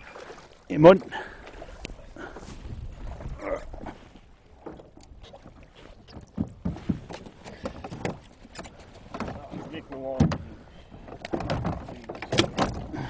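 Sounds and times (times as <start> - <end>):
waves slapping against a hull: 0.0 - 13.0
knocks and clicks from boat gear: 4.6 - 13.0.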